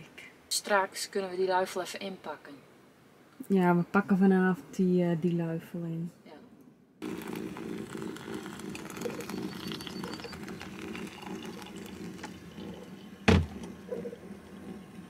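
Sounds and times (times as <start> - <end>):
water pouring onto coffee: 7.0 - 13.6.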